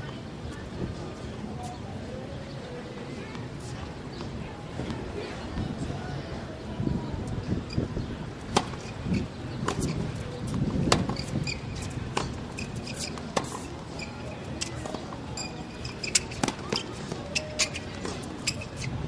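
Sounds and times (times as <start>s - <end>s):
low background murmur: 0.0s - 19.0s
tennis ball bouncing: 9.6s - 18.6s
tennis ball hit by racket: 16.1s - 16.9s.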